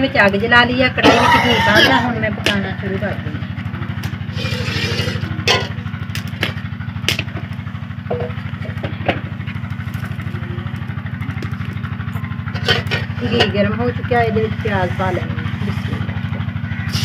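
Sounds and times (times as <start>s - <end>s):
small engine running: 0.0s - 17.0s
cooking utensils clicking and knocking: 12.5s - 13.7s.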